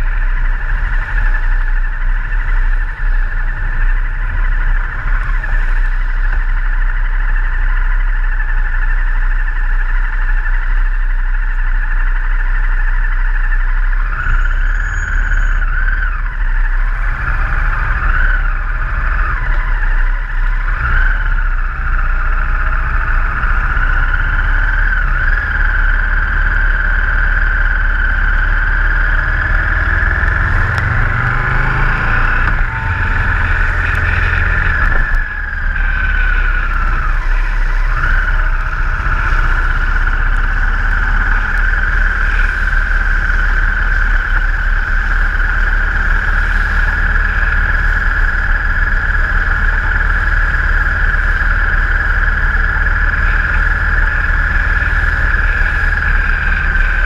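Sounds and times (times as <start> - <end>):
motorcycle engine drone: 0.0 - 57.0
wind noise on microphone: 29.5 - 42.5.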